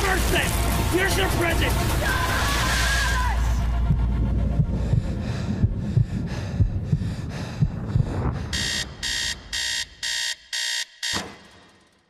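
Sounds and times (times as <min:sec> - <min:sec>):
low thudding pulse: 0:03.6 - 0:10.1
high electronic beeps: 0:08.6 - 0:11.3.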